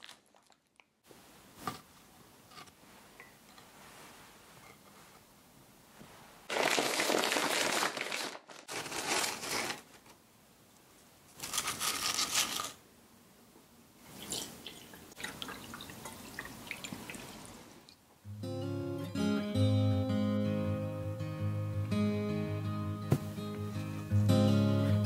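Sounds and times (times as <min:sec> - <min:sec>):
plastic bag crinkling: 0:00.0 - 0:00.8, 0:06.5 - 0:10.2.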